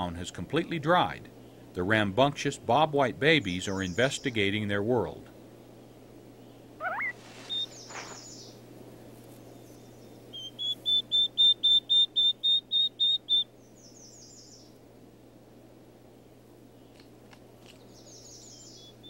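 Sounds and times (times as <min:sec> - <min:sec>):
chicks peeping: 0:06.8 - 0:08.5, 0:10.3 - 0:13.4
high falling chirps: 0:06.8 - 0:08.6.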